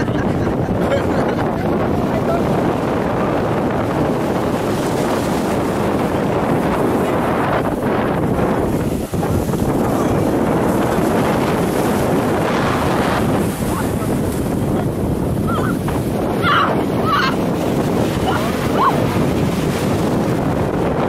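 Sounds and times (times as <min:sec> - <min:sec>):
surf breaking and washing: 0:00.0 - 0:21.0
wind buffeting microphone: 0:00.0 - 0:21.0.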